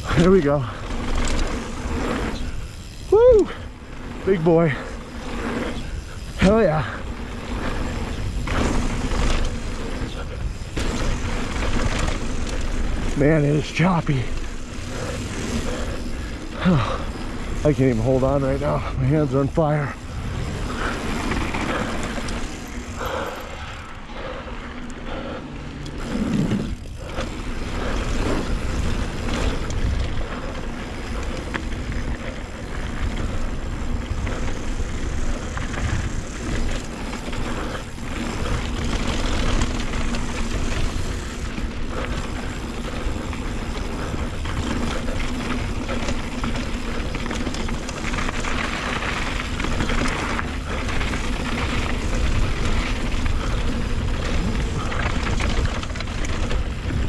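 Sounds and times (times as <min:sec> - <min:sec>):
bike rattling and knocking: 0:00.0 - 0:57.0.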